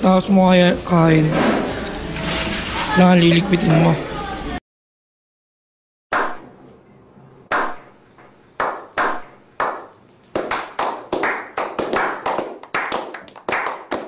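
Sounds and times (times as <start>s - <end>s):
men clapping with echo: 8.6s - 14.0s.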